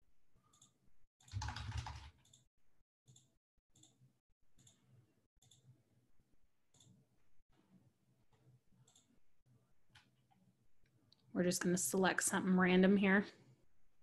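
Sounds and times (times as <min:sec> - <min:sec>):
computer mouse clicks: 0:00.5 - 0:02.4, 0:04.6 - 0:05.7, 0:06.7 - 0:07.0, 0:08.8 - 0:09.2.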